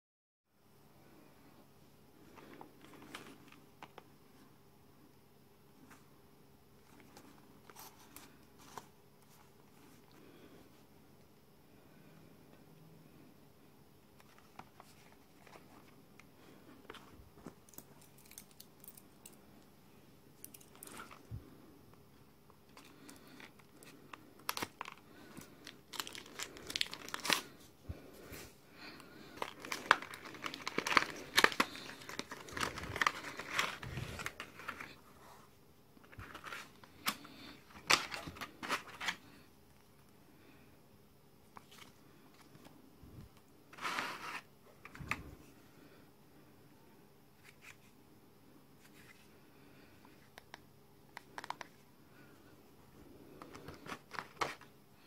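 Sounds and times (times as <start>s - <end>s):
plastic insert crinkling: 22.7s - 27.6s, 29.0s - 35.0s, 36.0s - 39.3s, 53.4s - 54.8s.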